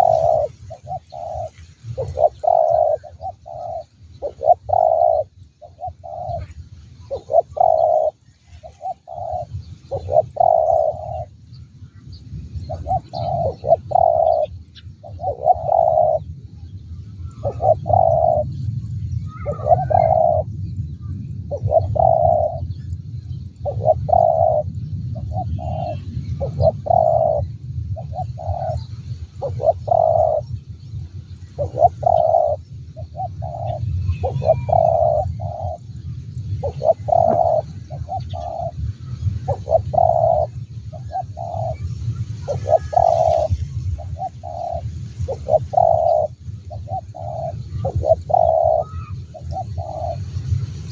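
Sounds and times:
dove cooing: 0:00.0 - 0:11.3, 0:12.6 - 0:16.3, 0:17.2 - 0:18.5, 0:19.3 - 0:20.5, 0:21.5 - 0:22.7, 0:23.6 - 0:30.5, 0:31.6 - 0:35.9, 0:36.6 - 0:50.2
small bird chirping: 0:00.0 - 0:11.3, 0:31.6 - 0:35.9, 0:36.6 - 0:50.2.

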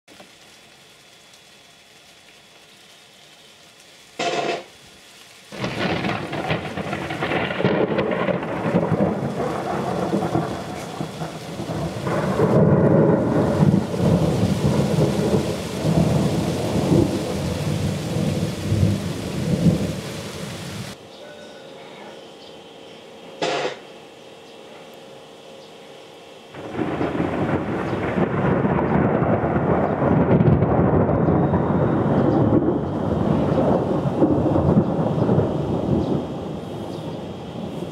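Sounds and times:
thunder rumbling: 0:05.5 - 0:21.0, 0:26.6 - 0:37.9
thunder crack: 0:05.6 - 0:20.5, 0:26.6 - 0:37.9.

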